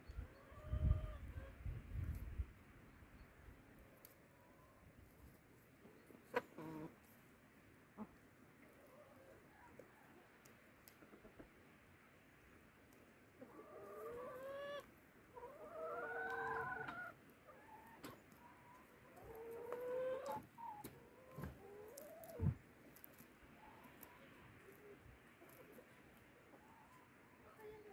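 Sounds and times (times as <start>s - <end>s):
hens clucking: 0.2s - 1.5s, 4.3s - 7.1s, 7.9s - 11.6s, 13.3s - 27.9s
hens calling: 13.4s - 22.5s.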